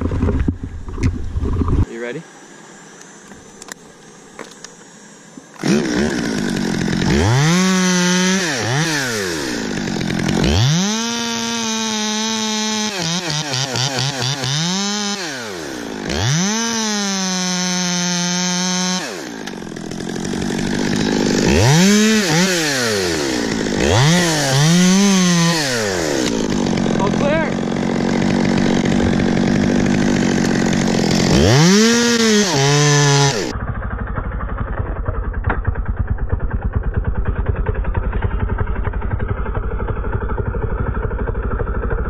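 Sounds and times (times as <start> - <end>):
chainsaw revving while cutting: 5.6 - 34.3.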